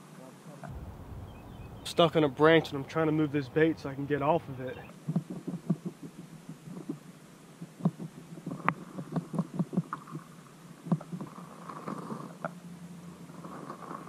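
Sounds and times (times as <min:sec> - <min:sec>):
faint hiss: 0:00.0 - 0:14.0
low underwater rumbling: 0:00.7 - 0:04.6.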